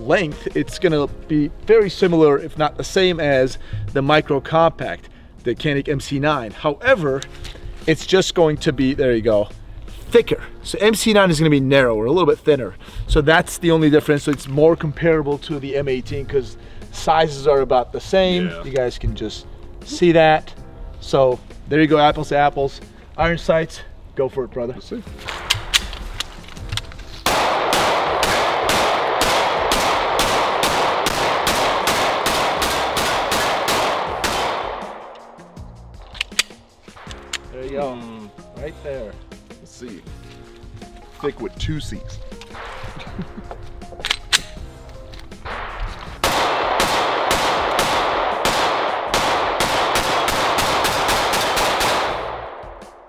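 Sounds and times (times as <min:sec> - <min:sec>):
pistol shots in rapid succession: 0:27.2 - 0:35.1, 0:45.4 - 0:53.0.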